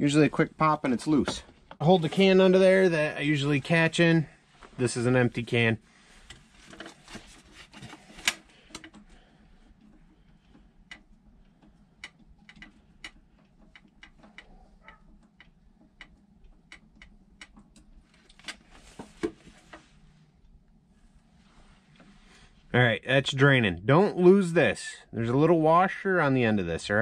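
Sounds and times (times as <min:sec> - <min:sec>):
metallic clicks and ticks: 0:09.7 - 0:18.0.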